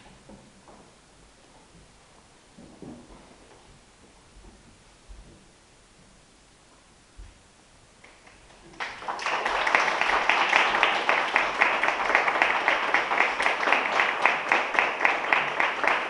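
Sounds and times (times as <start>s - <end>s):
audience applause: 8.7s - 16.0s.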